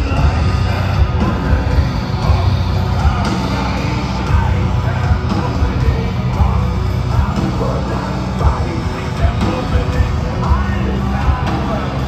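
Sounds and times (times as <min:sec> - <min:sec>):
heavy metal band playing live: 0:00.0 - 0:12.0.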